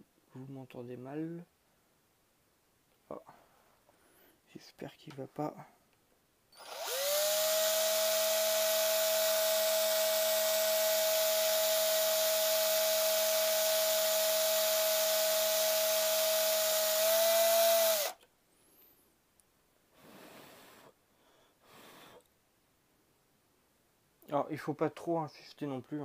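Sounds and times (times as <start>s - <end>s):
drill bit hissing on glass: 6.6s - 18.2s
drill motor whining: 6.6s - 18.2s.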